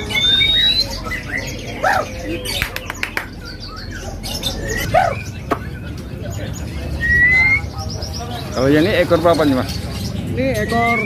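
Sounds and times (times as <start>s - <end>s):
songbirds chirping and whistling: 0.0s - 11.0s.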